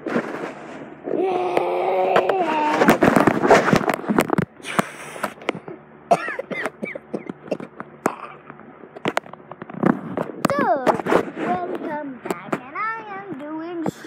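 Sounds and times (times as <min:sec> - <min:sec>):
girl making squeaky vocal noises: 0:01.1 - 0:02.9.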